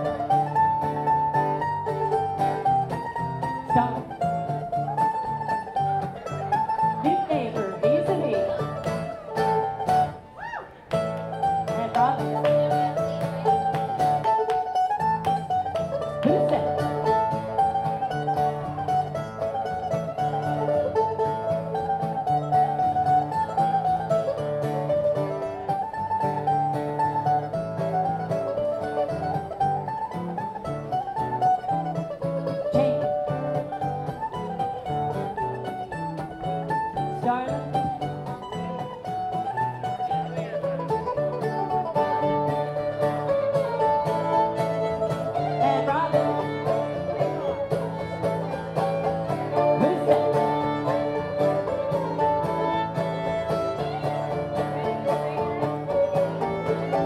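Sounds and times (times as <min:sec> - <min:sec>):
dance band playing: 0:44.8 - 0:54.9.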